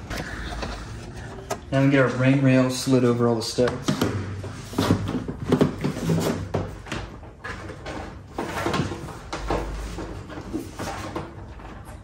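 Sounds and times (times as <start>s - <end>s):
knocks clicks and scrapes: 0.0s - 1.8s.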